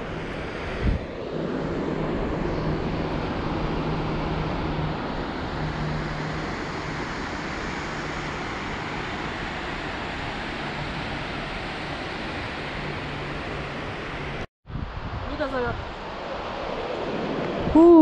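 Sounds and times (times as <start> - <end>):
steady rushing noise: 0.0 - 17.8.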